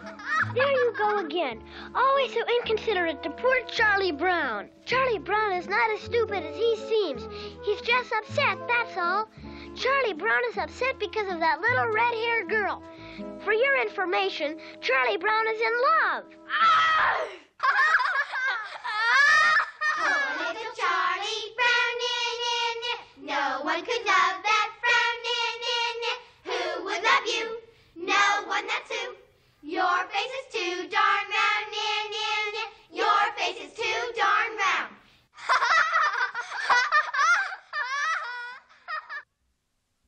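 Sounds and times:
girls laughing: 0.0 - 1.5, 16.6 - 20.6, 35.4 - 39.3
girls chanting a sing-song taunt: 20.0 - 35.0.

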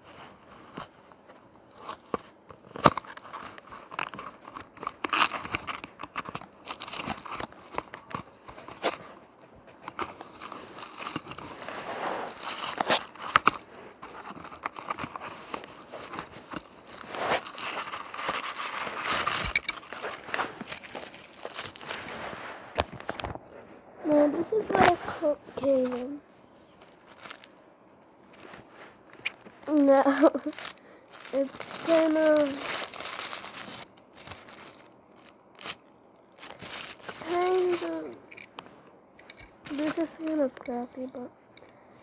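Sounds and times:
plastic crinkling: 0.6 - 23.4, 24.4 - 41.7
cardboard box being opened: 9.9 - 23.3.

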